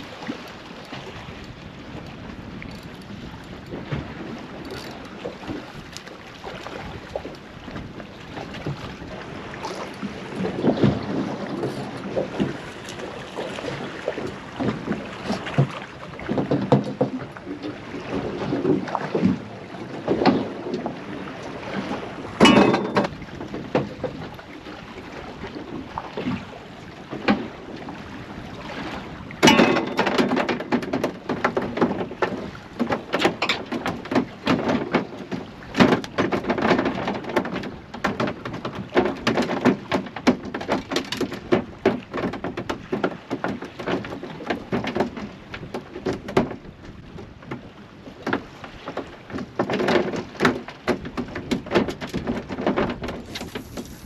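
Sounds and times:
knocks and thumps on boat: 0:00.0 - 0:54.0
water slapping boat hull: 0:00.0 - 0:54.0.

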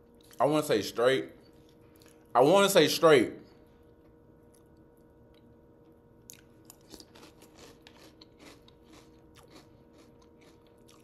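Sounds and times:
person chewing crunchy food: 0:06.2 - 0:11.0.

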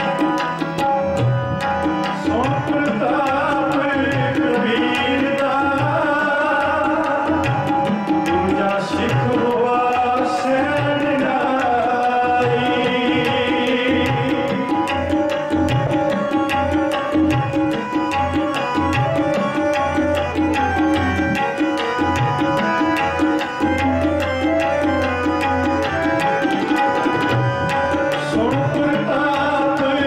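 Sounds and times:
harmonium drone: 0:00.0 - 0:30.0
tabla rhythm: 0:00.0 - 0:30.0
man singing a hymn: 0:02.3 - 0:07.4, 0:08.3 - 0:14.6, 0:28.3 - 0:30.0.

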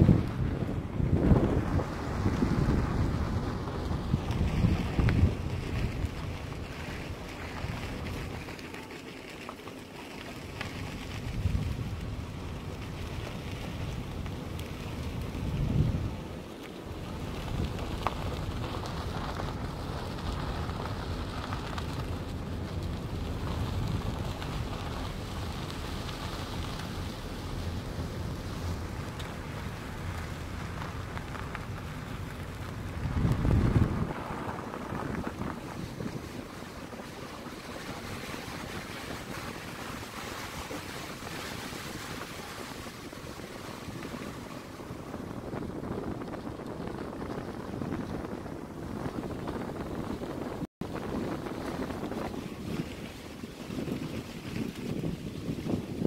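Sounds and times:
tyres rolling on gravel road: 0:00.0 - 0:56.0
wind buffeting microphone: 0:00.0 - 0:56.0.

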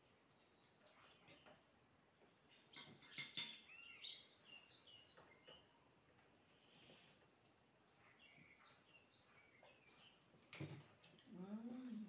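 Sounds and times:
bird chirps: 0:00.3 - 0:05.8, 0:08.0 - 0:10.3.

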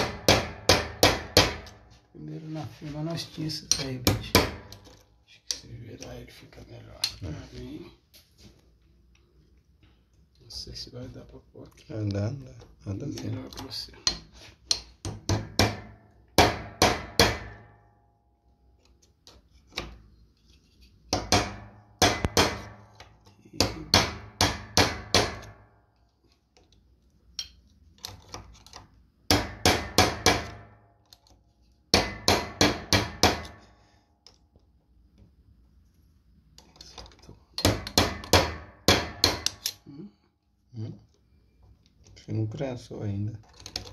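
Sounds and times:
hammer striking metal: 0:00.0 - 0:01.8, 0:03.7 - 0:04.8, 0:14.1 - 0:17.9, 0:21.1 - 0:22.9, 0:23.6 - 0:25.7, 0:29.3 - 0:30.8, 0:31.9 - 0:33.6, 0:37.6 - 0:39.8.

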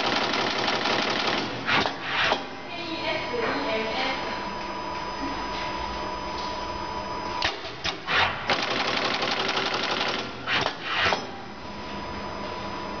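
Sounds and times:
machine clacks: 0:00.0 - 0:01.9, 0:08.5 - 0:10.8
rapid mechanical clatter: 0:00.0 - 0:01.9, 0:08.5 - 0:10.7
machine hum with thin tone: 0:00.0 - 0:13.0.

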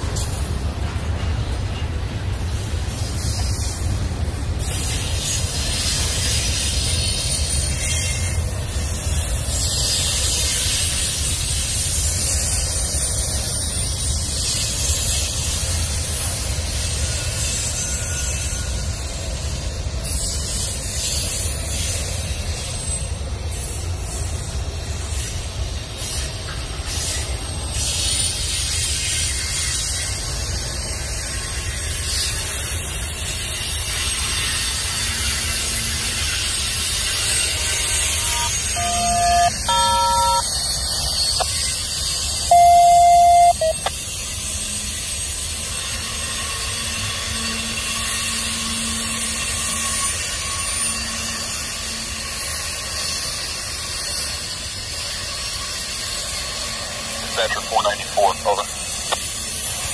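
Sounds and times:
train wheels rumbling on rail: 0:00.0 - 0:38.1
short beeping tones: 0:38.3 - 0:40.5, 0:42.5 - 0:43.9.

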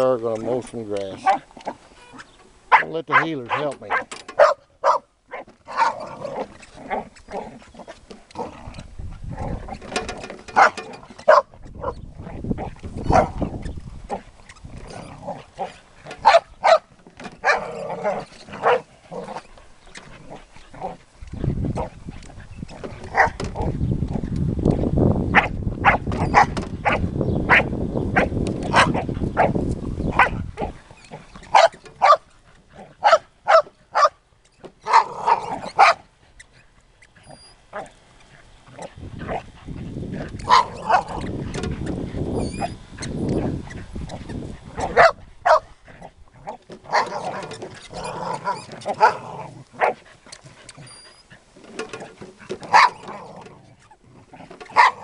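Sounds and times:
dogs barking sharply: 0:02.7 - 0:06.0, 0:10.6 - 0:12.0, 0:16.2 - 0:17.7, 0:25.4 - 0:29.5, 0:31.5 - 0:32.3, 0:33.0 - 0:34.2, 0:40.4 - 0:41.2, 0:44.8 - 0:45.7, 0:46.9 - 0:47.5, 0:52.6 - 0:53.1, 0:54.7 - 0:55.0
dog growling low: 0:05.9 - 0:09.9, 0:12.2 - 0:16.1, 0:17.5 - 0:24.2, 0:35.0 - 0:35.7, 0:37.2 - 0:45.0, 0:45.8 - 0:51.4, 0:52.4 - 0:55.0.

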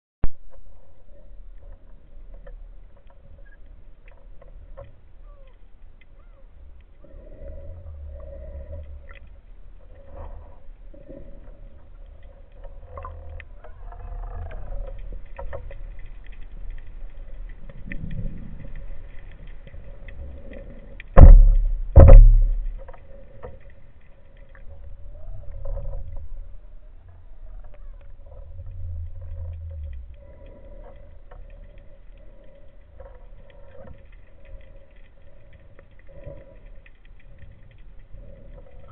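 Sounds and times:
underwater rumble: 0:00.2 - 0:38.9
faint clicks: 0:00.3 - 0:38.9
loud thumps: 0:21.2 - 0:22.8.

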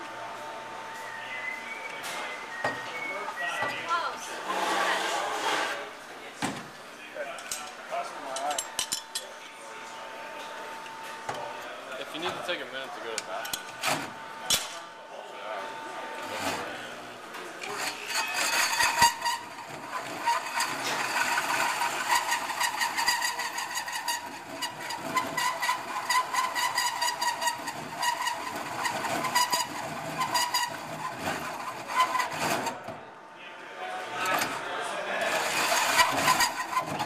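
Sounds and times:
hole saw grinding into metal: 0:17.6 - 0:32.8, 0:35.2 - 0:37.0.

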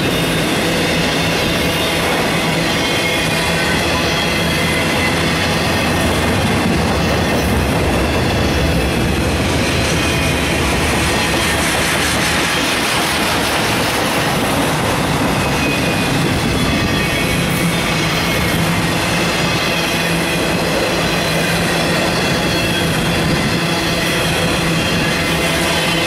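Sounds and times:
steel wheels on rails: 0:00.0 - 0:26.0.

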